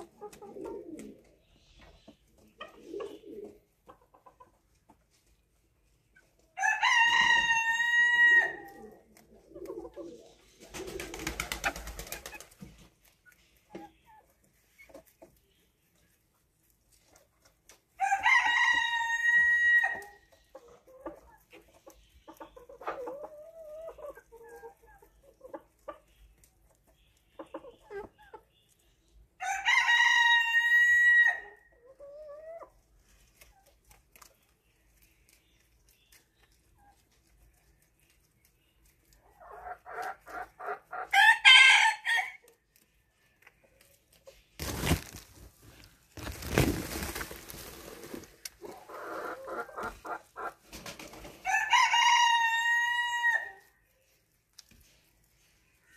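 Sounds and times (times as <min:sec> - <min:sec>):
chicken clucking: 0:00.0 - 0:55.9
rooster crowing: 0:51.5 - 0:53.5.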